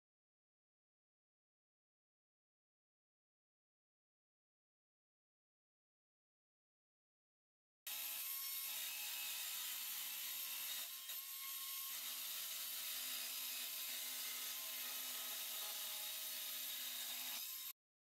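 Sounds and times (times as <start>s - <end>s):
circular saw cutting plywood: 7.9s - 17.8s.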